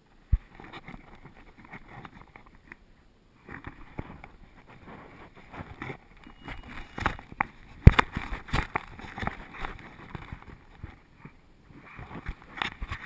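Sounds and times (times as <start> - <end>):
camera rubbing on fur: 3.4 - 13.0.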